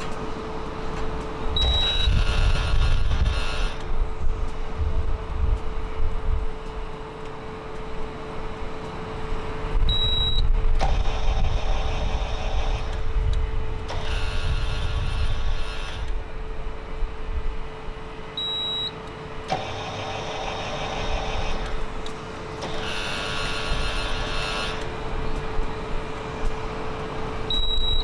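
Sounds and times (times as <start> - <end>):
harsh alarm sound: 0.0 - 5.9, 6.6 - 17.0, 18.2 - 26.0
metal detector hum: 1.5 - 4.6, 9.9 - 13.0, 27.5 - 28.0
short high beep: 1.6 - 2.2, 9.9 - 10.4, 18.4 - 19.0, 27.5 - 28.0.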